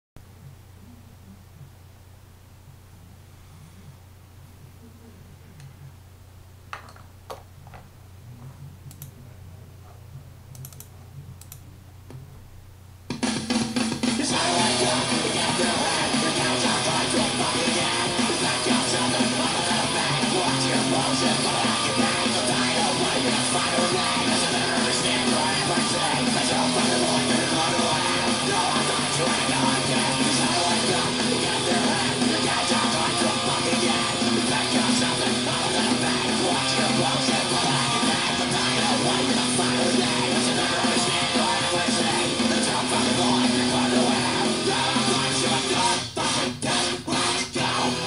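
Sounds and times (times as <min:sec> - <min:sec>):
faint clicks: 0:08.9 - 0:09.2, 0:10.5 - 0:12.2
punk music with distorted guitar: 0:13.1 - 0:48.0.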